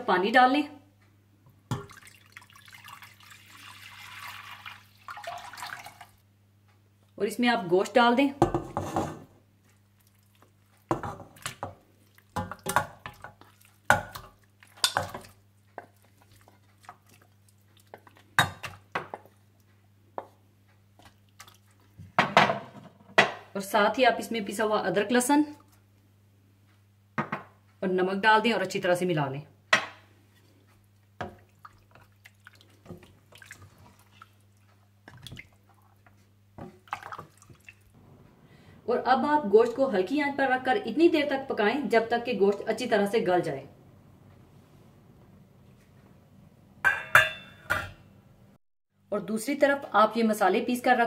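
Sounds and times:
wet squelches of stirring: 1.0s - 6.2s, 7.8s - 22.2s, 25.2s - 26.1s, 30.0s - 38.0s
spatula scraping and knocking: 8.5s - 9.3s
spatula knocking pot: 10.9s - 16.2s, 46.8s - 48.0s.

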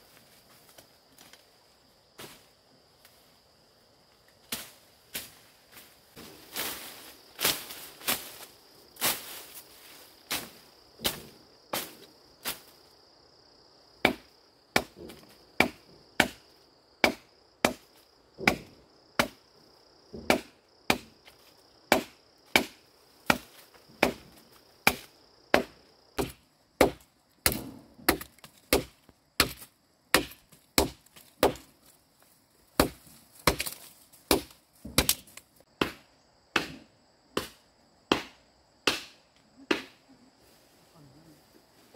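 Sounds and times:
insect drone: 0.0s - 41.9s
blade chopping wood: 14.0s - 16.4s, 17.0s - 19.4s, 20.2s - 21.2s, 21.9s - 24.2s, 24.8s - 31.7s, 32.8s - 40.0s.

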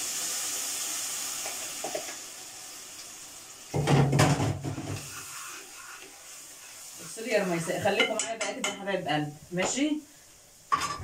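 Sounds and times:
sauce sizzling in frying pan: 0.0s - 11.0s
spoon clattering and scraping pan: 7.5s - 8.9s, 10.7s - 11.0s.

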